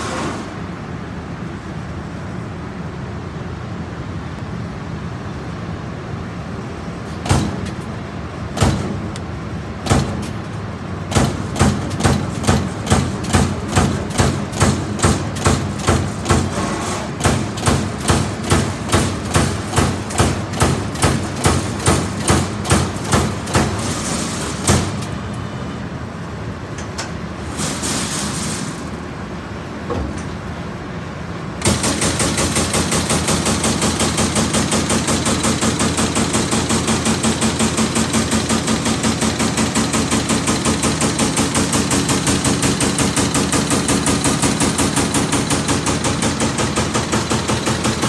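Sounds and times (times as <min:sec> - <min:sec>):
punch press humming: 0:07.2 - 0:25.5.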